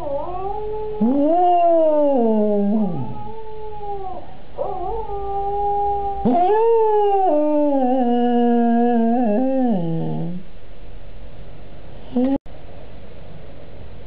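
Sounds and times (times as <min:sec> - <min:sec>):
dog howling: 0:00.0 - 0:10.4
recorded dog howling from computer: 0:00.1 - 0:08.1.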